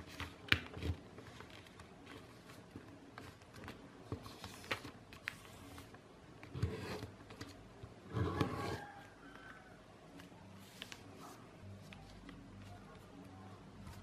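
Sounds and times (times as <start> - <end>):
paper folding and rustling: 0.0 - 6.0, 10.2 - 14.0.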